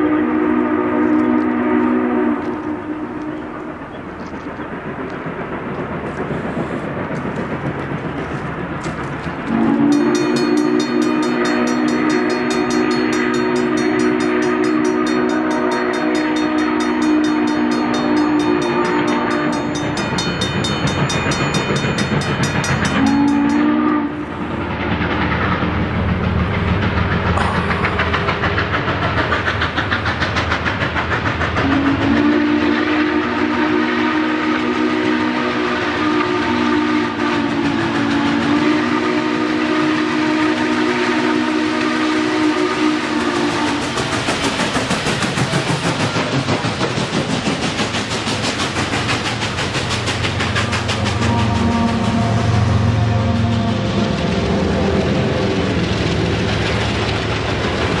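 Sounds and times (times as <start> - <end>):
steam whistle blasts: 0.0 - 3.8, 9.5 - 19.8, 23.0 - 24.3, 31.6 - 44.0, 51.1 - 54.1
locomotive rumble: 0.0 - 58.0
crossing bell ringing: 9.9 - 23.8.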